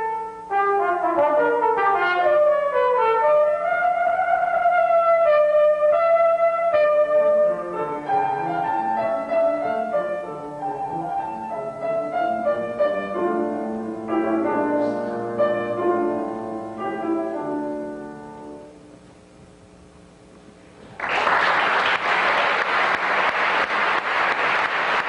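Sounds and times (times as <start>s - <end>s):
grand piano playing classical piece: 0.0s - 19.1s.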